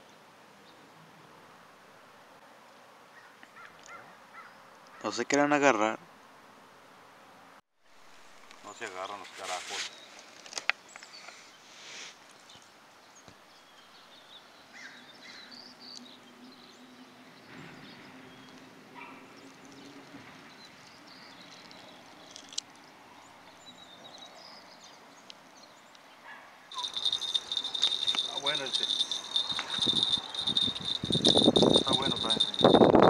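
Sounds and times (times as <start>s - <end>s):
fishing rod metallic jingling: 26.7s - 33.0s.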